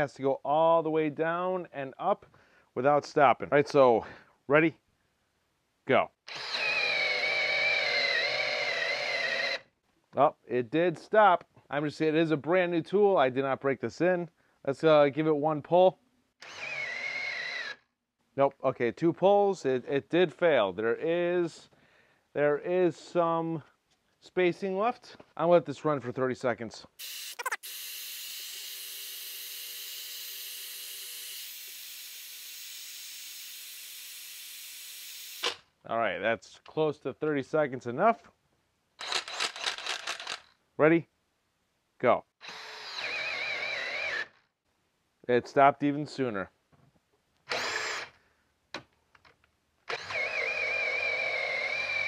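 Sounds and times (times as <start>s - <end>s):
cordless drill spinning unloaded: 6.3s - 9.6s, 16.4s - 17.8s, 27.0s - 35.7s, 39.0s - 40.6s, 42.4s - 44.4s, 47.4s - 48.2s, 49.2s - 52.0s.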